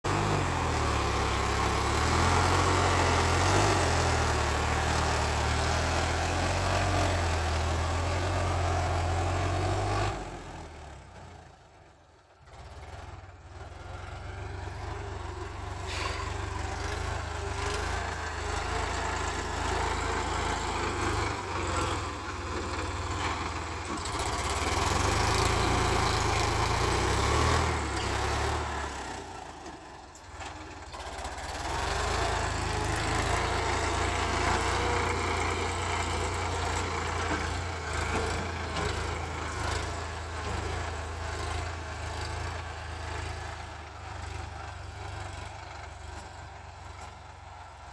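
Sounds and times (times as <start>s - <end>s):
tractor diesel engine running: 0.1s - 47.9s
blade dragging through soil: 15.5s - 29.1s.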